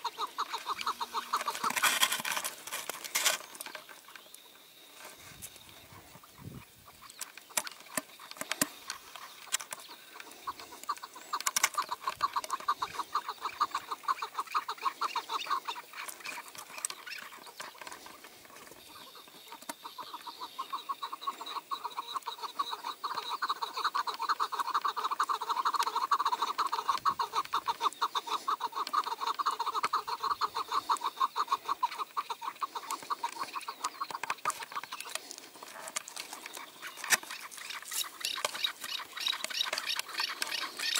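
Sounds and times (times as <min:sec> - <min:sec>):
partridge clucking calls: 0:00.0 - 0:40.9.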